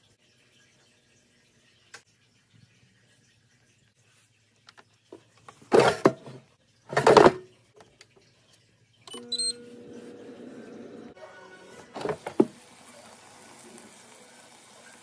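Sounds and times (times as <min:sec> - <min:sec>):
air fryer beeps: 0:09.1 - 0:12.5
fan humming: 0:09.1 - 0:15.0.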